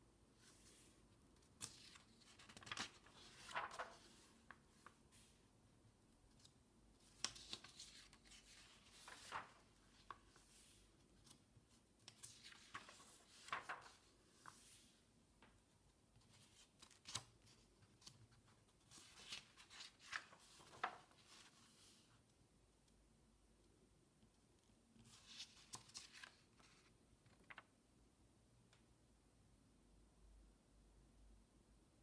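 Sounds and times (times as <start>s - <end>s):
paper pages rustling: 0.4s - 5.4s, 6.4s - 15.0s, 16.2s - 22.1s, 25.0s - 27.7s.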